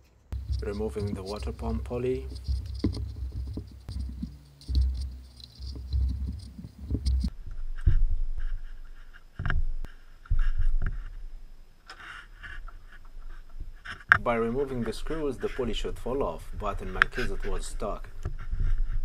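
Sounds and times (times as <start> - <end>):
low handling thuds: 0.3 - 7.3
tools knocking and scraping metal: 0.3 - 7.3.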